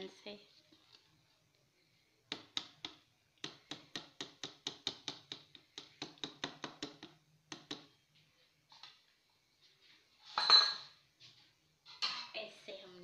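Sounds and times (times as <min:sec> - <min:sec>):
whisk tapping plastic bowl: 0:02.3 - 0:07.9.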